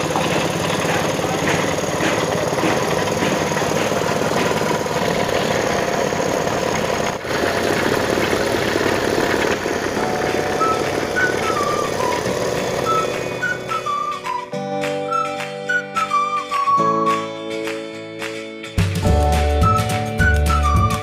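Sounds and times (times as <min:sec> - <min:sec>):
engine running steadily: 0:00.0 - 0:14.3.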